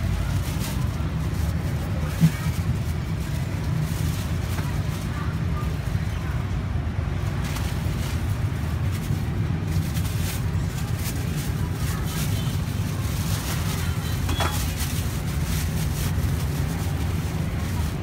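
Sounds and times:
low rumble of street traffic: 0.0 - 18.0
plastic bags crinkling: 7.0 - 18.0.

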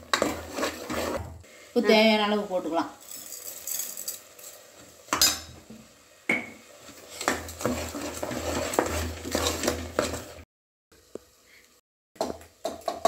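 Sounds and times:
metal ladle clanking and scraping pot: 0.0 - 1.3, 6.9 - 10.4
salt sprinkling into pot: 3.0 - 5.0.

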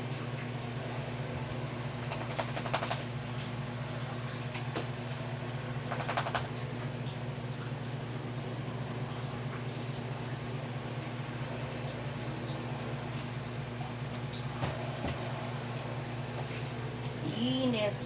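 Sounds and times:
low electric hum: 0.0 - 18.0.

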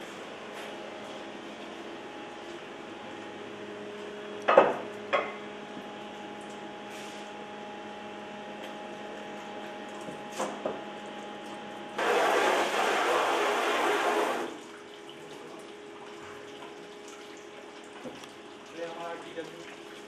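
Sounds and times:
hose spraying water: 12.0 - 14.6
steady hum: 12.0 - 14.6.

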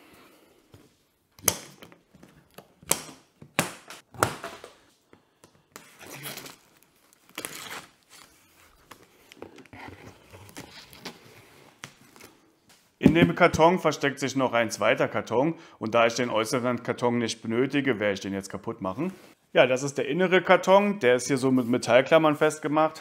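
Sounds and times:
cardboard crinkling and tearing: 5.8 - 12.3.

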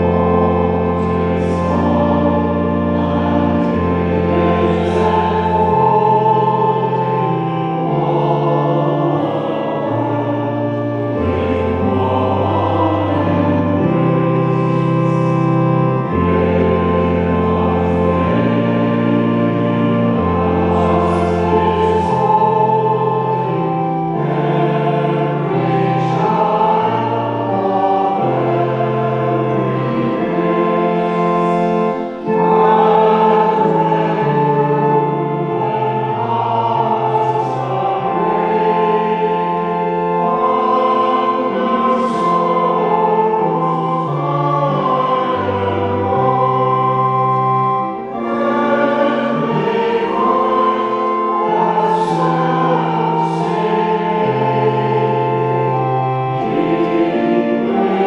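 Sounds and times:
congregation singing a hymn: 0.0 - 58.0
organ chords: 0.0 - 58.0.

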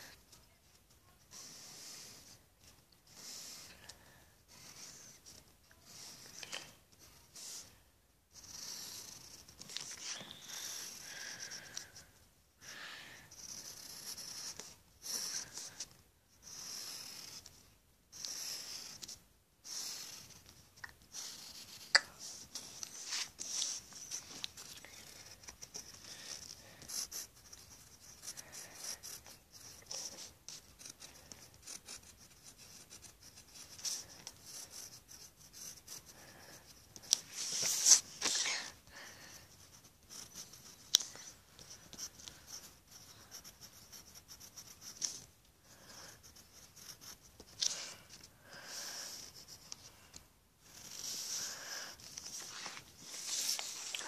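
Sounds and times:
drawing tool scratching paper: 0.0 - 50.0, 50.6 - 54.0
rubs and clicks: 2.0 - 7.7, 8.4 - 12.1, 19.9 - 38.8, 39.6 - 45.4, 46.3 - 48.3, 49.0 - 54.0.

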